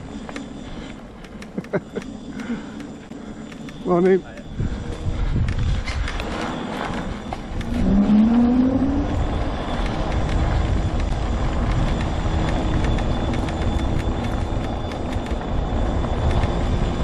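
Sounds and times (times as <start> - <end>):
electric motor whine: 0.0 - 17.0
low rumble: 4.4 - 17.0.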